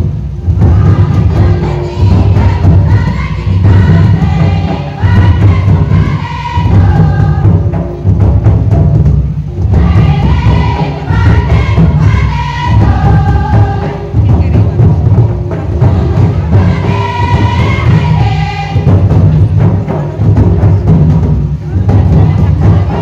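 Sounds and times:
hand-played barrel drums: 0.0s - 23.0s
group of voices singing: 0.4s - 8.0s, 9.6s - 14.9s, 15.6s - 20.1s, 21.7s - 23.0s.

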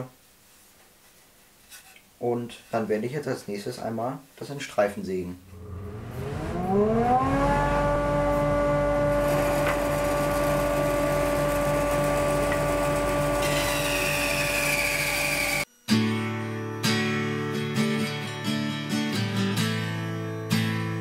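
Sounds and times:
band saw motor running: 5.4s - 15.7s
saw blade cutting board: 9.1s - 15.7s
acoustic guitar music: 15.8s - 21.0s.

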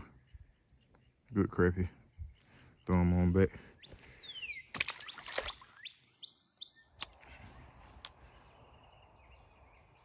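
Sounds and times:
faint bird chirps: 0.0s - 10.0s
fish splash: 4.7s - 5.8s.

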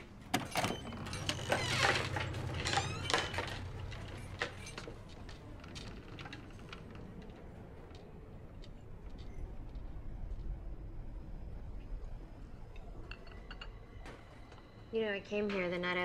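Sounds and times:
door creak: 0.3s - 7.0s.

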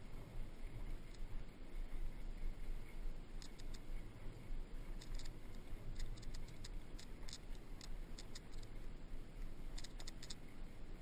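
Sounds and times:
metallic ticks and rattles: 3.4s - 3.9s, 5.0s - 8.7s, 9.7s - 10.4s.

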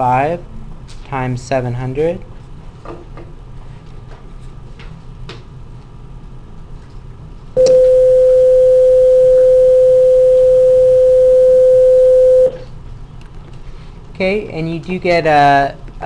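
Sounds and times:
electronic beep: 7.6s - 12.6s.

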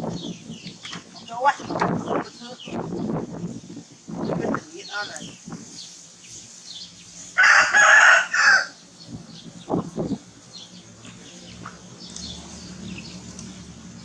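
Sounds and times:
rooster crowing: 7.4s - 8.8s.

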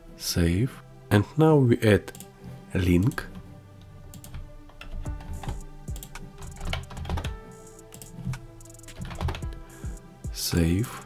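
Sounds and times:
quiet background music: 0.0s - 11.0s
keyboard keys tapping: 4.1s - 10.4s.

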